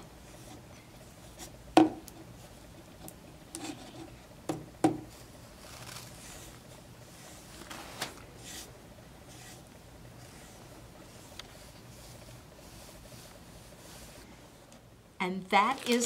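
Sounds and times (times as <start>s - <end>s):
paintbrush strokes: 8.4s - 14.4s.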